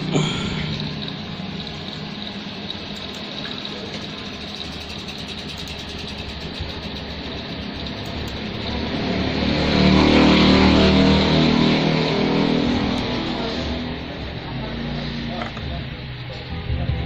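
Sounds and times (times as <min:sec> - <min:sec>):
music: 0:15.1 - 0:17.0.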